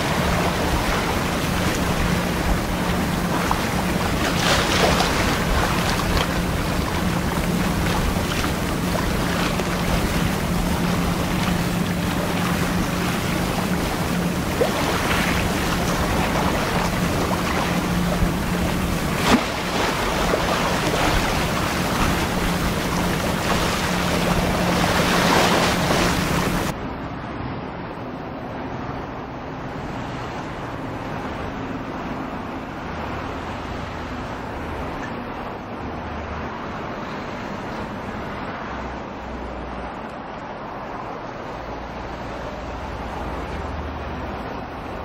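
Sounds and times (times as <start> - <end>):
tug engine droning: 0.0 - 26.7
wind buffeting microphone: 0.0 - 26.8.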